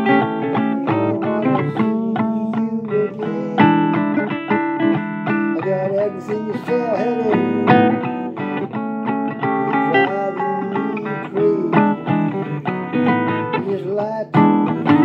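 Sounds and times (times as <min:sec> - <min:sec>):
blues electric guitar: 0:00.0 - 0:15.0.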